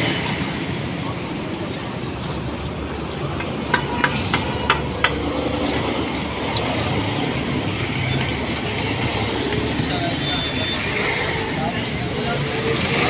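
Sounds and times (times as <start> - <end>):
tool tapping on engine: 3.3 - 6.7.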